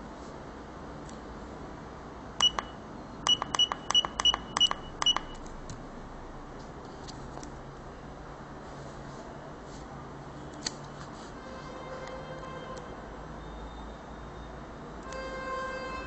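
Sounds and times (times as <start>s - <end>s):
button clicks with electronic beeps: 2.4s - 5.4s.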